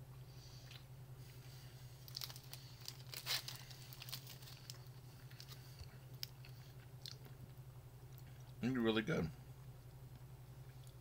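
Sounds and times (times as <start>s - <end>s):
low electrical hum: 0.0s - 11.0s
plastic wrapper crinkling: 2.0s - 7.2s.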